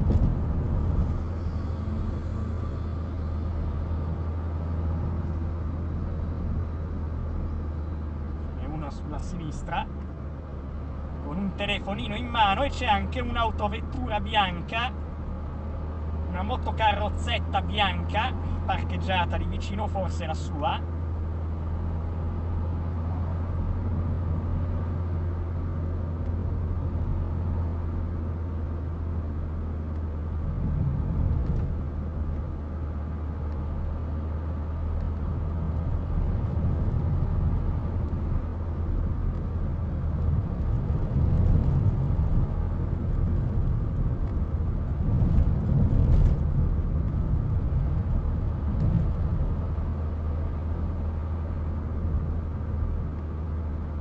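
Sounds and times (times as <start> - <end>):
car engine and tyre rumble: 0.0 - 54.0.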